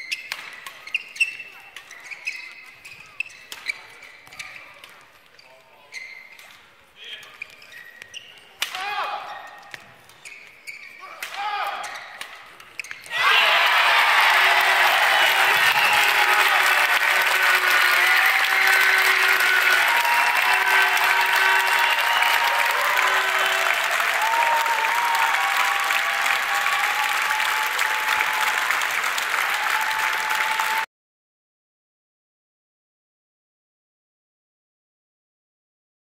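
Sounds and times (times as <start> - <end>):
audience applauding: 13.2 - 30.9.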